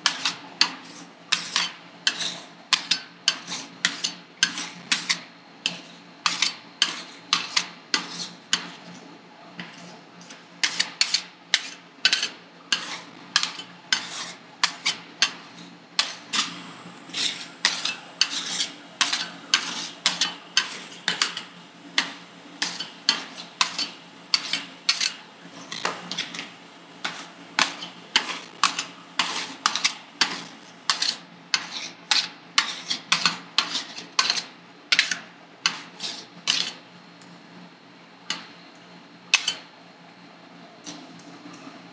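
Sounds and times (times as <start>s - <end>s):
spatulas scraping: 16.4s - 31.9s.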